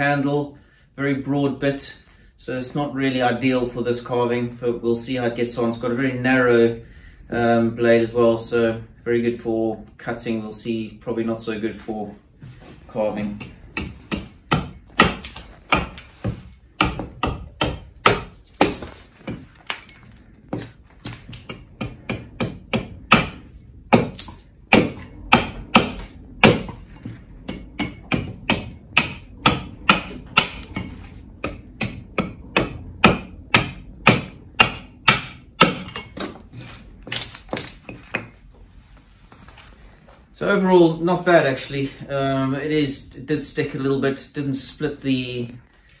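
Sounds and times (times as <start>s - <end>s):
axe chopping wood: 13.8s - 19.9s, 20.5s - 26.8s, 27.5s - 36.3s.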